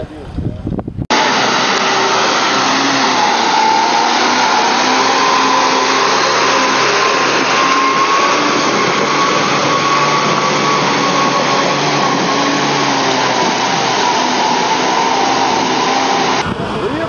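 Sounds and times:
engine at high revs: 1.1 - 17.0
wheels churning mud: 1.1 - 17.0.

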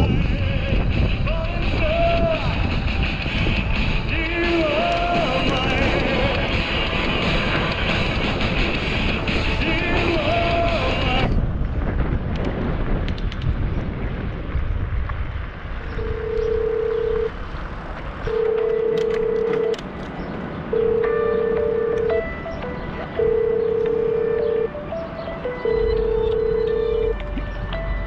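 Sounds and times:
music: 0.0 - 11.4, 20.8 - 28.0
wind noise: 0.0 - 28.0
mobile phone ringing: 16.0 - 17.3, 18.2 - 19.8, 20.7 - 27.2.

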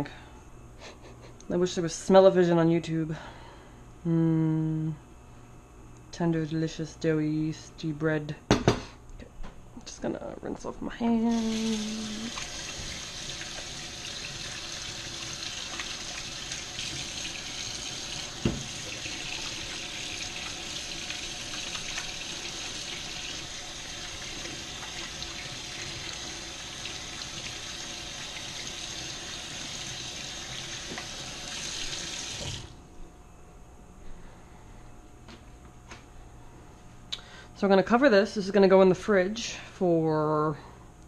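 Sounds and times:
faucet water running into sink: 11.3 - 32.7.

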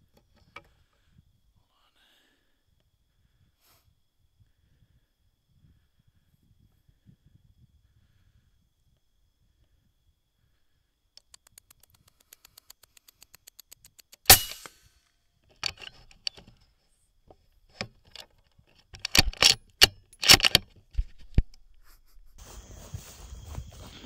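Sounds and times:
rifle shot: 14.3 - 14.9
rifle handling clicks and knocks: 15.4 - 16.7, 17.3 - 21.7.

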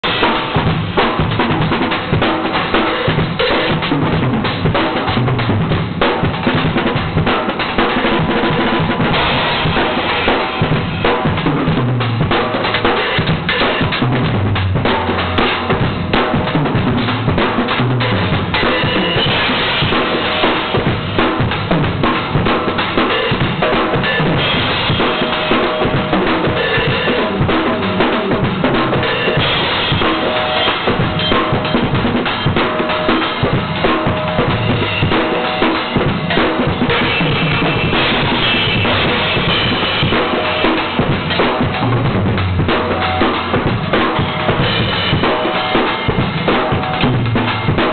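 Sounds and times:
drum kit solo: 0.0 - 47.9
cymbal hits: 8.9 - 11.8, 14.8 - 47.9.

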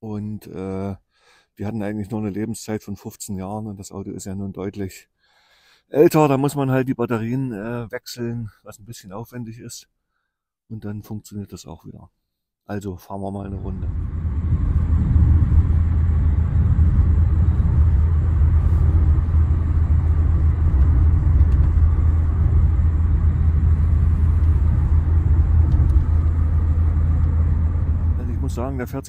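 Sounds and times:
car engine and tyres rumbling: 13.5 - 29.0.

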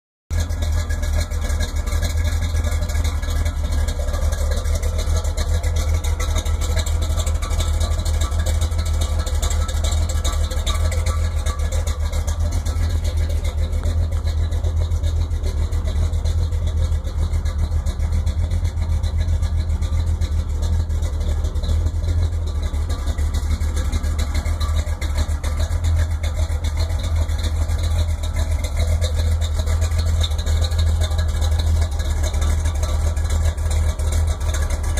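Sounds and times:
pickup engine idling: 0.3 - 34.9.

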